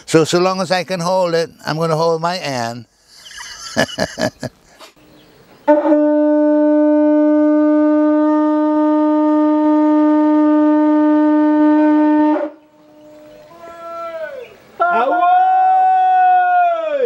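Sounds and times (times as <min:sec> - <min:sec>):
conch shell horn note: 0:05.6 - 0:13.8.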